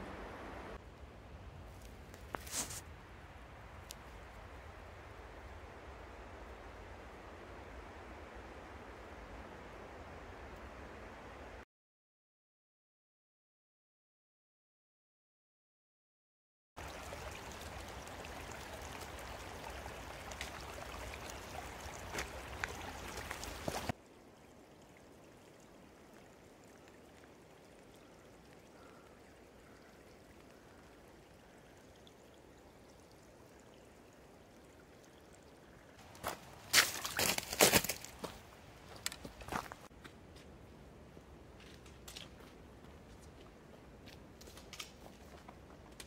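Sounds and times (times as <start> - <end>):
sharp crunching: 36.2 - 38.4.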